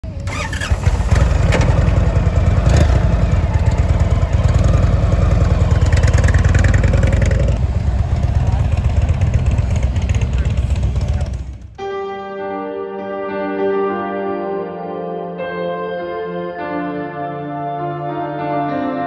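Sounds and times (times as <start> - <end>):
motorcycle engine revving: 0.0 - 11.8.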